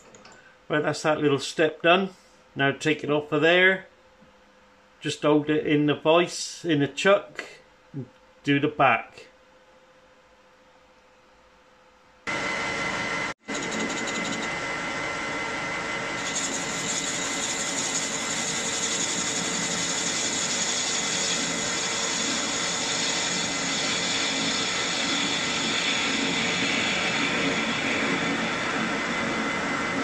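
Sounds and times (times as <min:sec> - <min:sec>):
metal lathe whine: 0:12.3 - 0:30.0.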